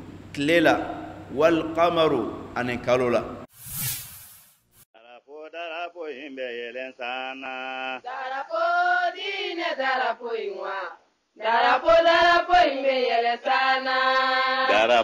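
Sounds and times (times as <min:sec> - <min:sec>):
voices singing religious chant: 0:05.0 - 0:15.0.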